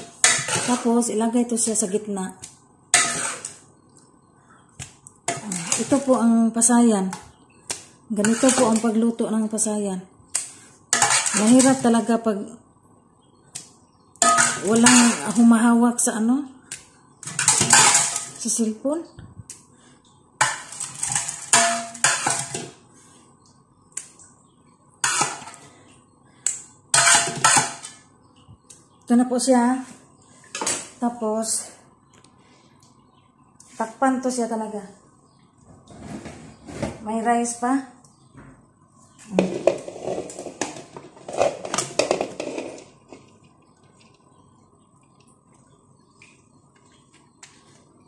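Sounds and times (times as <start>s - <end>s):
spoon scraping metal pots: 0.0s - 1.1s, 2.9s - 3.6s, 5.3s - 6.3s, 8.1s - 9.1s, 10.4s - 12.0s, 14.2s - 15.6s, 17.2s - 18.6s, 20.4s - 22.8s, 25.0s - 25.7s, 26.9s - 28.0s, 39.4s - 43.5s.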